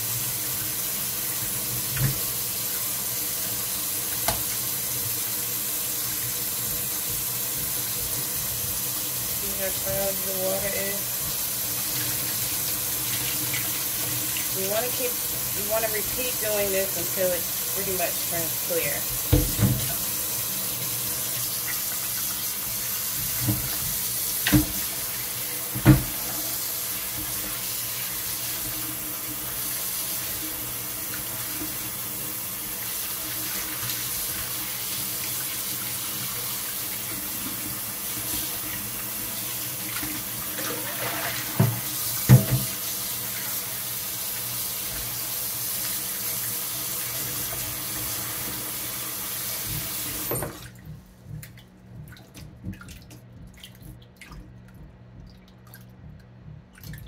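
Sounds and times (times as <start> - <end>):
faucet running into bowl of water: 0.0 - 50.7.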